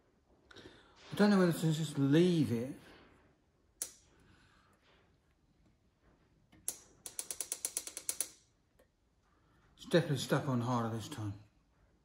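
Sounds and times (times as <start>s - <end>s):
dent lifter ratcheting clicks: 6.6s - 8.5s.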